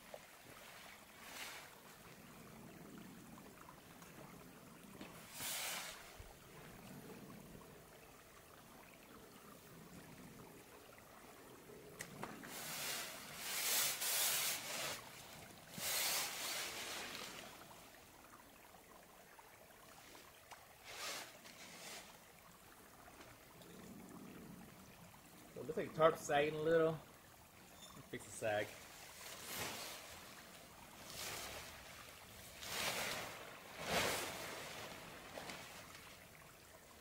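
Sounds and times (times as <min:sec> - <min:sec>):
tarp fabric rustling: 0:00.5 - 0:02.0, 0:05.0 - 0:06.2, 0:12.5 - 0:17.7, 0:20.8 - 0:22.2, 0:28.8 - 0:36.3.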